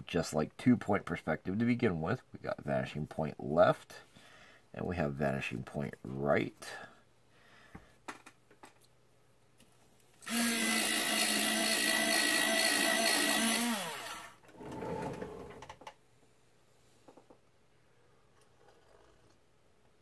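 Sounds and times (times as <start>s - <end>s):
electric pencil sharpener motor: 10.2s - 14.4s.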